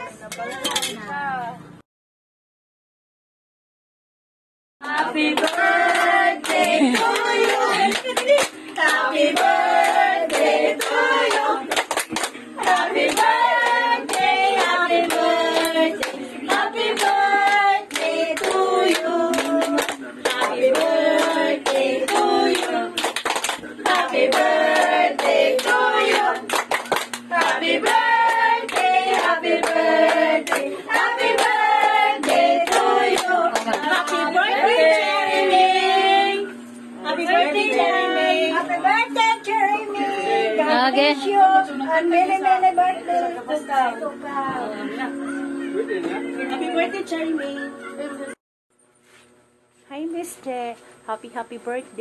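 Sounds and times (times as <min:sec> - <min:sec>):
group of people singing: 0:04.8 - 0:43.7
hands clapping in time: 0:04.9 - 0:31.6.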